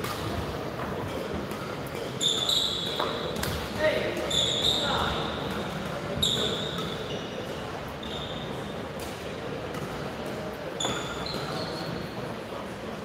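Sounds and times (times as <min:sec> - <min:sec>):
sports hall background noise: 0:00.0 - 0:13.0
shoes squeaking on court: 0:01.5 - 0:08.8, 0:10.7 - 0:12.2.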